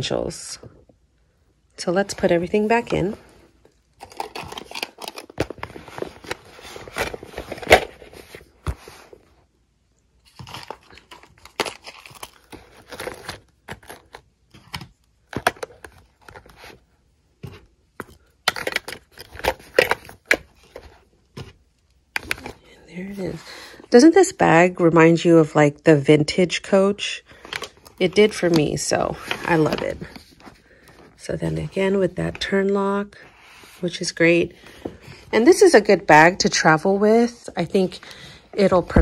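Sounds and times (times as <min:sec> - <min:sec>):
rustling and crinkling: 0:02.0 - 0:09.5, 0:10.2 - 0:23.7, 0:27.3 - 0:36.3.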